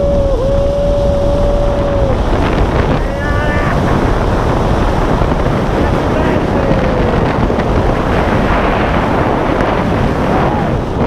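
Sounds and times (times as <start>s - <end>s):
wind buffeting microphone: 0.0s - 11.0s
person yelling: 3.0s - 4.0s.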